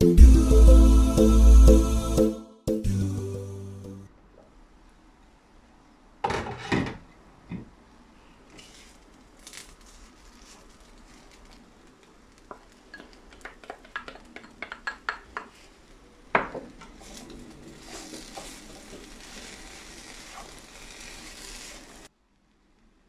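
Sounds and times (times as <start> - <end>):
faint sizzle: 7.8 - 14.0, 14.8 - 23.0
spatula scraping wok: 16.8 - 22.1.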